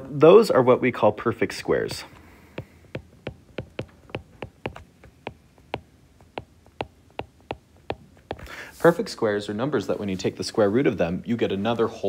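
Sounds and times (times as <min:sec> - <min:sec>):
stylus clicking on glass screen: 0:02.6 - 0:08.4.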